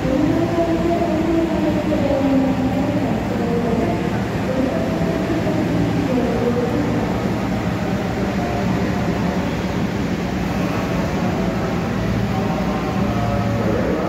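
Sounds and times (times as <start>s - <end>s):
escalator rumble and hum: 0.0s - 14.0s
train noise: 0.0s - 14.0s.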